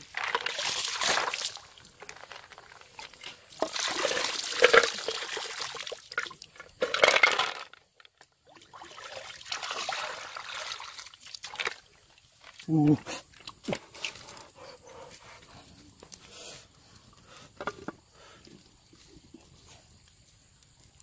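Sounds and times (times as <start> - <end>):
water pouring and splashing: 0.0 - 14.4.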